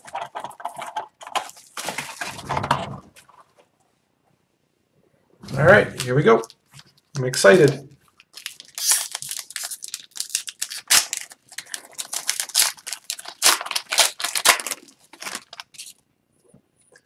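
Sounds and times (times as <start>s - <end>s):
wrapper tearing and crinkling: 6.4s - 16.0s.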